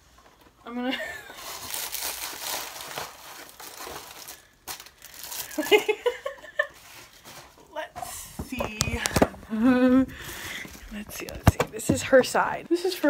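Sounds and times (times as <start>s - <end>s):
plastic bag crinkling: 1.3s - 6.3s, 8.4s - 12.6s
person laughing: 9.4s - 10.8s.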